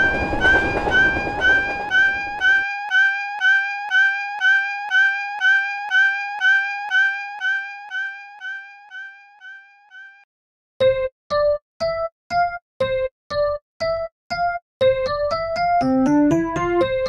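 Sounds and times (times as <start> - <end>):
train rumble: 0.0 - 2.6
railroad crossing alarm ringing: 0.0 - 10.1.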